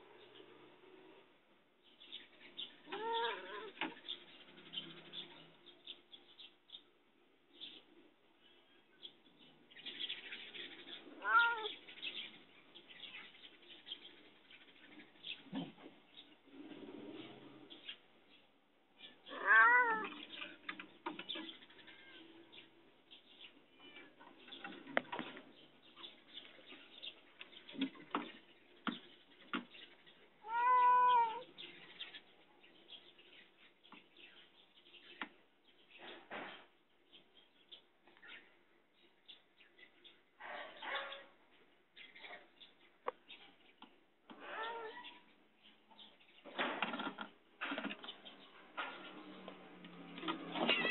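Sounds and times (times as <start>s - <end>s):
cat meowing: 2.9s - 3.8s, 11.2s - 11.8s, 19.3s - 20.2s, 30.4s - 31.5s, 50.6s - 50.9s.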